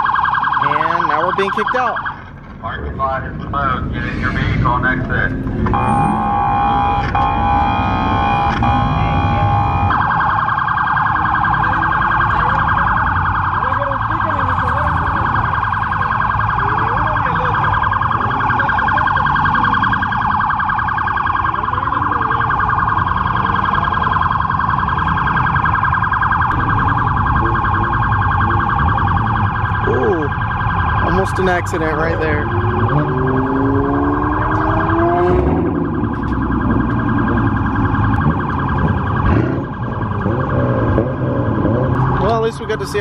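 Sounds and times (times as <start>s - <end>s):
police siren warbling: 0.0s - 43.0s.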